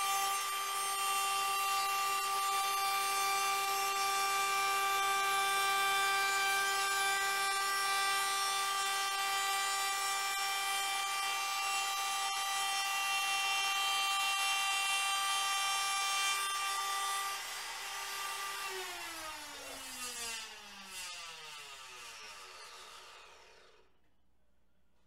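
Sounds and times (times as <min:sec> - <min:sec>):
router high whine: 0:00.0 - 0:15.9.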